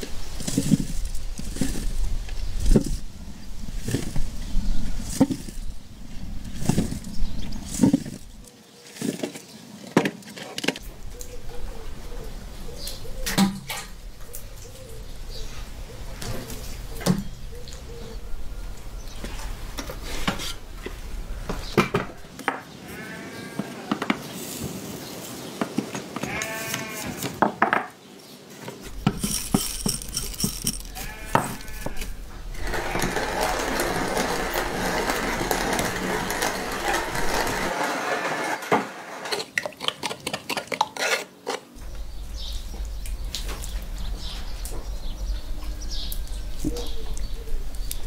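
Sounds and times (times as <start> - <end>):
hand grinder grinding: 0.4 - 2.0, 28.9 - 41.7
sheep bleating: 22.8 - 23.9, 26.2 - 27.2, 30.9 - 32.2
peppercorns rattling into grinder: 28.9 - 39.5.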